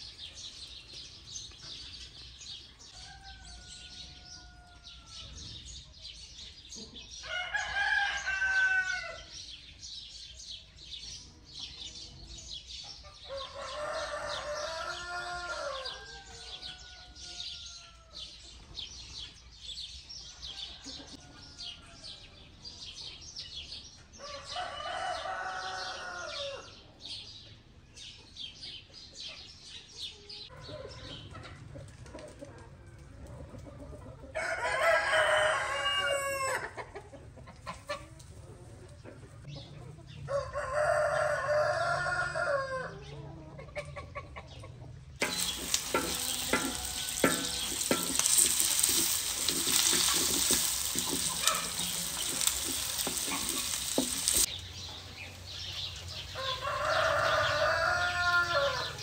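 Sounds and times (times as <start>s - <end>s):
small birds chirping: 0.0s - 8.4s, 44.3s - 59.0s
rooster crowing: 2.9s - 5.4s, 7.2s - 9.3s, 13.3s - 18.2s, 24.2s - 26.7s, 34.4s - 36.7s, 40.3s - 43.0s, 45.2s - 54.5s, 56.2s - 59.0s.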